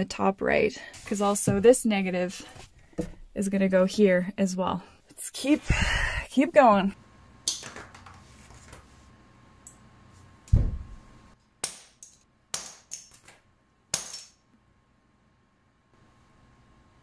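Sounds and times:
heavy thump: 10.5s - 11.0s.

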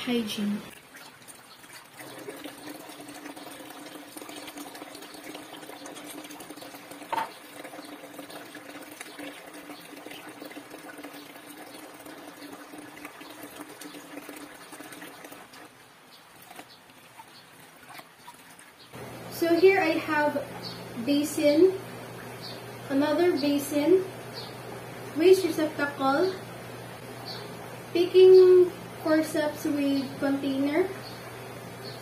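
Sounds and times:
tap water running into basin: 0.1s - 32.0s
steady hum: 19.0s - 32.0s.

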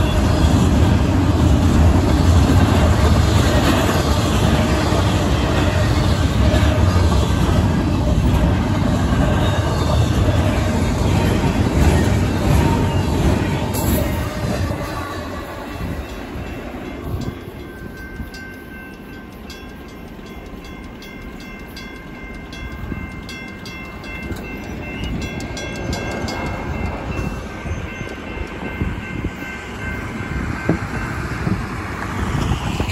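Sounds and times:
train rumbling: 0.0s - 32.9s
electronic crossing bell tone: 15.8s - 31.4s.

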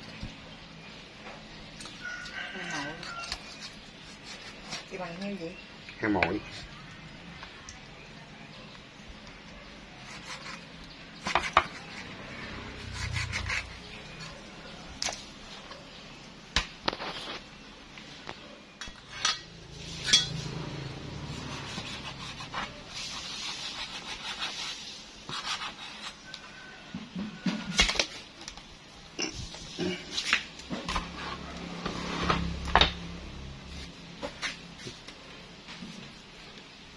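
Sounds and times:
cleaver chopping ribs on wood: 11.2s - 12.1s.

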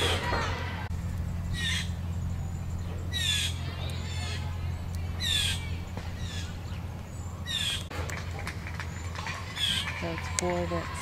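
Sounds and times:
bird calling: 1.4s - 7.9s, 8.9s - 10.1s.

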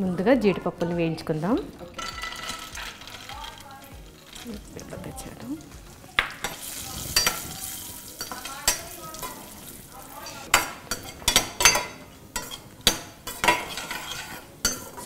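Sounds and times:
cashews sizzling in ghee: 0.1s - 15.0s
metal spatula scraping pan: 1.8s - 4.5s, 6.2s - 15.0s.

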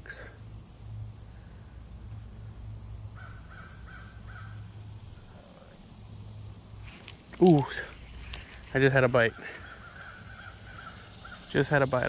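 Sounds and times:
high-pitched insect drone: 0.0s - 12.0s
crow cawing: 3.2s - 4.7s, 9.2s - 11.6s.

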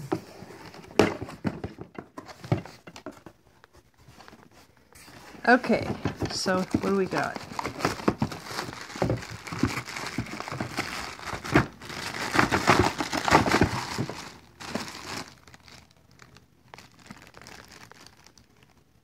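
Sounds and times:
cardboard packaging rustling: 0.0s - 19.0s
sharp crackles and knocks: 5.6s - 15.9s.

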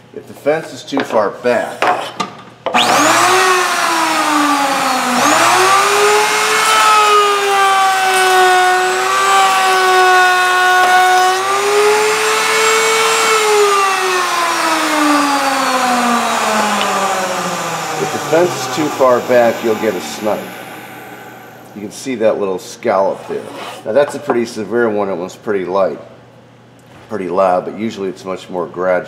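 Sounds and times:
router whining and cutting wood: 2.7s - 21.8s.

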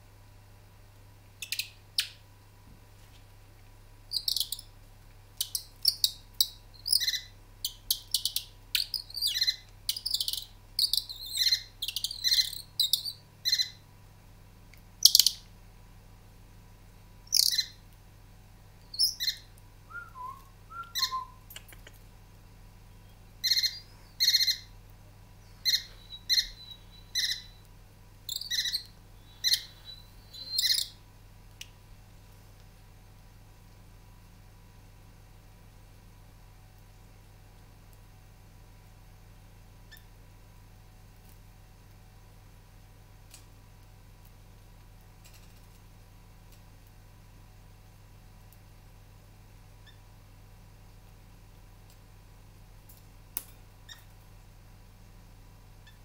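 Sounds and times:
finches chirping: 1.4s - 2.2s, 4.1s - 4.7s, 5.4s - 13.8s, 15.0s - 15.4s, 17.3s - 17.8s, 18.9s - 19.5s, 20.7s - 21.4s, 23.1s - 24.7s, 25.4s - 27.7s, 28.3s - 31.0s.

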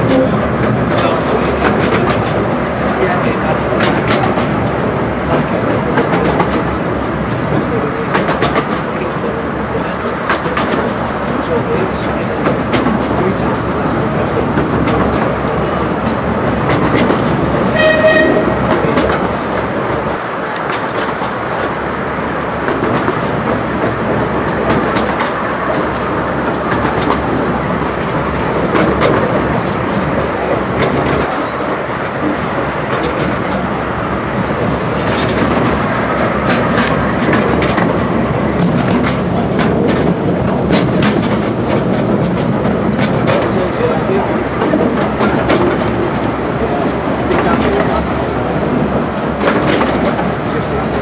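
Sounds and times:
wheels clicking over rail joints: 0.0s - 21.8s, 22.6s - 51.0s
miniature train rumble: 0.0s - 51.0s
brief high tone: 17.8s - 18.6s.

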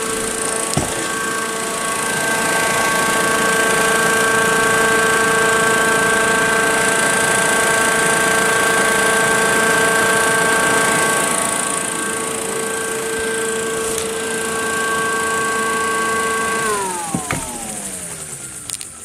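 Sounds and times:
motor whirring: 0.0s - 4.4s, 10.0s - 19.0s
siren steady tone: 0.0s - 19.0s.

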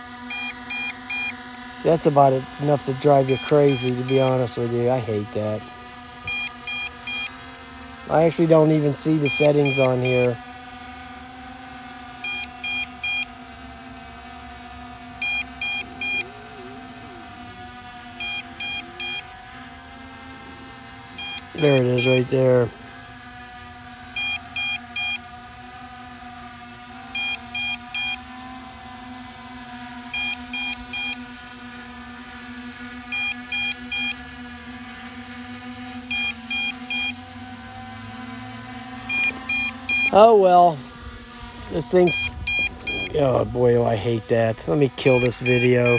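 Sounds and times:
steady hum: 0.0s - 45.9s
short high beeps: 42.1s - 43.2s, 45.1s - 45.9s.

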